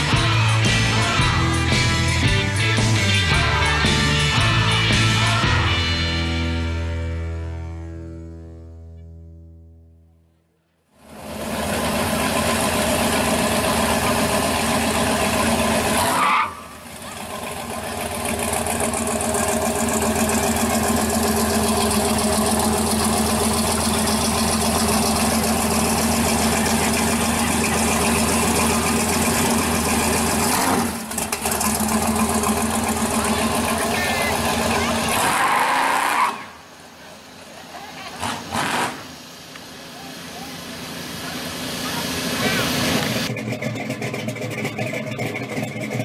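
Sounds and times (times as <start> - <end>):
car engine revving: 11.0 - 46.0.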